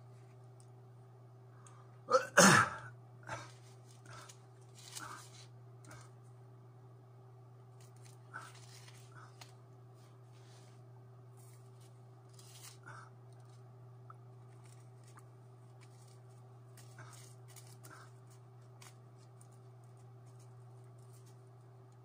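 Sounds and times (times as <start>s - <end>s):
steady low hum: 0.0s - 22.0s
man sneezing: 2.1s - 2.9s.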